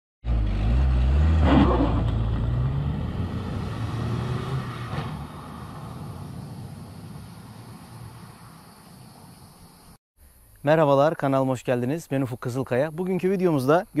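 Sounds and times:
diesel car accelerating away: 0:00.2 - 0:08.2.

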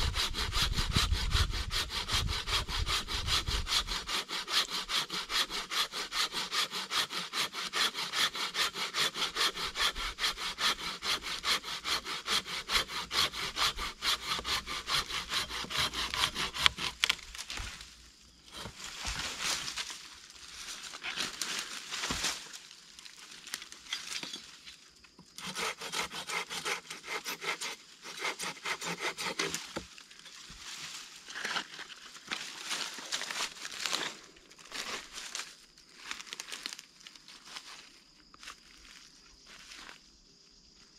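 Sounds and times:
hand saw cutting branch: 0:00.0 - 0:17.8, 0:18.5 - 0:19.8, 0:25.3 - 0:29.8.

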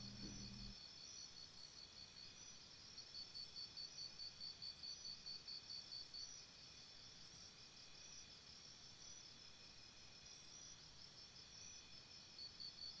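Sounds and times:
faint high-pitched chirping: 0:00.0 - 0:00.8.

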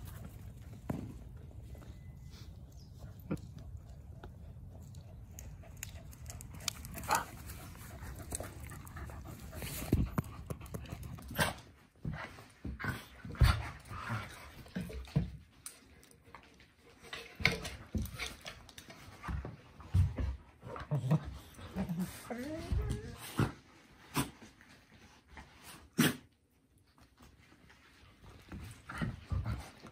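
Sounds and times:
dogs panting: 0:00.0 - 0:15.0
dogs scuffling and mouthing: 0:00.0 - 0:26.0, 0:26.6 - 0:29.9.

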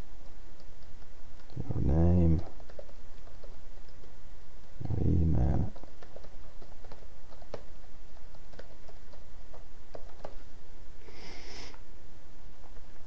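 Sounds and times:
background hiss: 0:00.0 - 0:13.0
keyboard typing: 0:00.2 - 0:04.2, 0:04.8 - 0:10.5.

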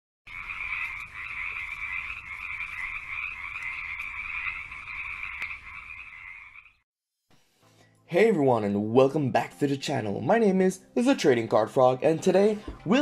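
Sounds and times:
chorus of frogs calling: 0:00.3 - 0:06.8.

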